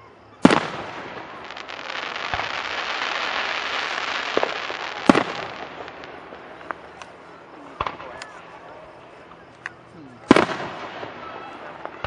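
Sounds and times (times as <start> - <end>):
crackling hiss with small pops: 0.4 - 7.2
firework shells bursting: 0.4 - 7.2.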